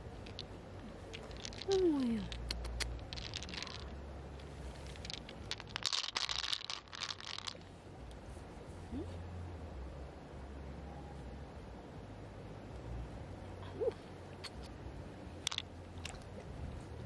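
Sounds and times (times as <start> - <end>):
pearls clicking and clattering: 0.0 - 7.7, 15.4 - 15.7.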